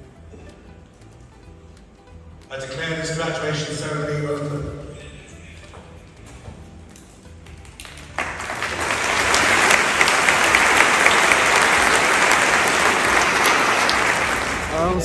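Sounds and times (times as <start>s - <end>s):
large audience applauding: 7.6s - 15.0s.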